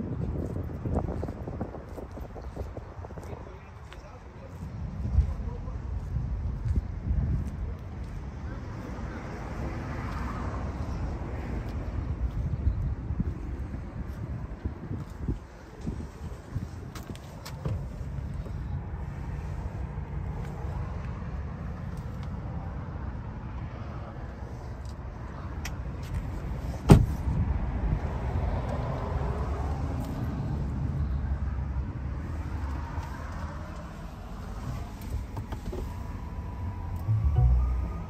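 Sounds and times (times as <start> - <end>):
wind rumble on microphone: 0.0 - 38.0
car door thud: 26.8 - 27.2.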